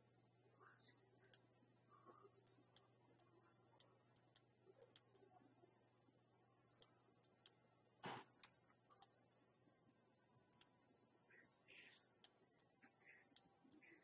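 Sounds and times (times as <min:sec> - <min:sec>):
low steady hum: 0:00.0 - 0:14.0
computer mouse clicks: 0:00.8 - 0:01.5, 0:02.3 - 0:05.4, 0:06.8 - 0:07.6, 0:08.2 - 0:09.2, 0:10.5 - 0:10.8, 0:12.2 - 0:14.0.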